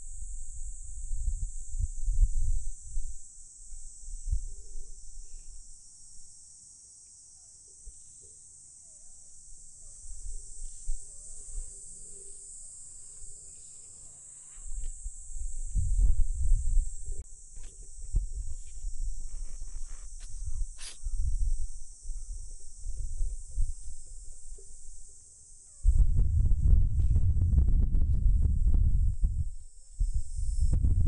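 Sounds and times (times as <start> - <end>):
insects trilling: 0.0 - 26.8, 28.3 - 30.9
microphone rumbles: 14.6 - 24.6, 25.9 - 31.0.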